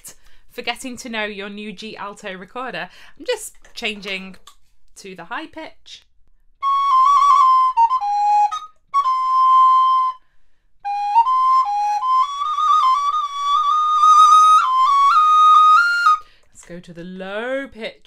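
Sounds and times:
recorder melody: 0:06.6 - 0:10.2, 0:10.8 - 0:16.2.

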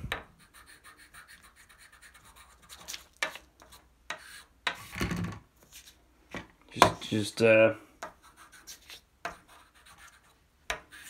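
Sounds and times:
charcoal scratching on paper: 0:00.4 - 0:04.9, 0:08.1 - 0:11.0.

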